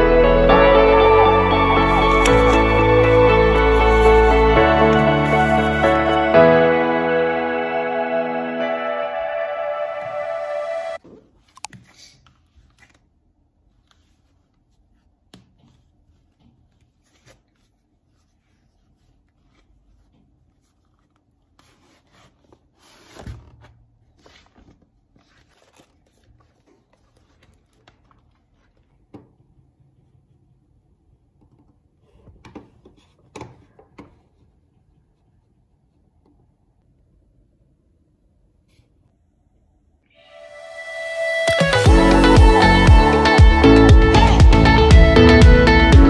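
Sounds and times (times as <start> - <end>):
book pages rustling: 1.8 - 6.3, 11.1 - 30.5.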